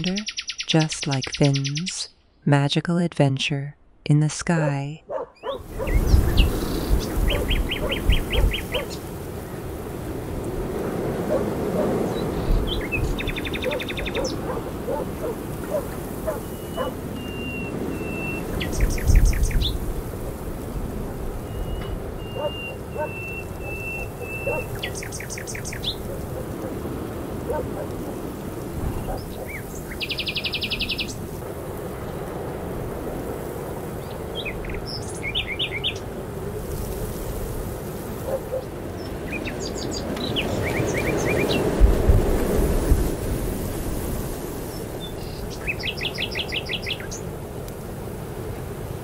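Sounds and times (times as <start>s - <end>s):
songbirds calling: 0.0s - 2.2s, 5.1s - 31.4s, 33.6s - 36.2s, 37.9s - 41.9s, 44.6s - 47.4s
bird trilling: 5.1s - 9.0s, 11.8s - 19.8s, 21.5s - 26.8s
thin whistled bird notes: 21.5s - 26.1s.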